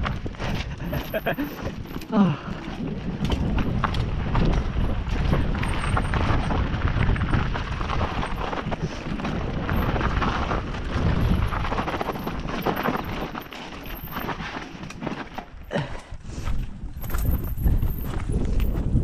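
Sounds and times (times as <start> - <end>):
bike rattling and clattering: 0.0 - 19.0
wind and ground rumble: 0.0 - 19.0
tyres rolling over stones: 0.4 - 15.9.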